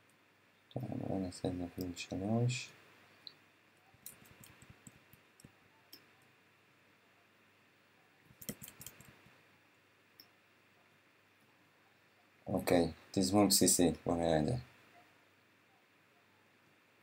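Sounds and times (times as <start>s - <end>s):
computer mouse clicks: 4.0s - 6.1s, 8.4s - 9.3s.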